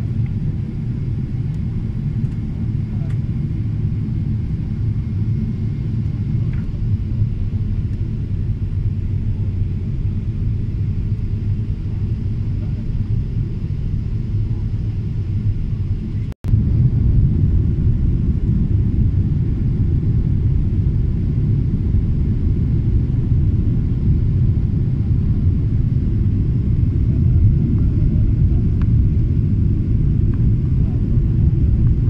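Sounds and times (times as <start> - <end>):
airplane cabin rumble: 0.0 - 32.0.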